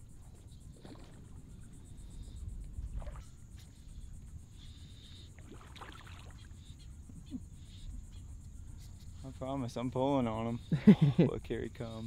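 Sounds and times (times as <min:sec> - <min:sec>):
low wind rumble: 0:00.0 - 0:05.6.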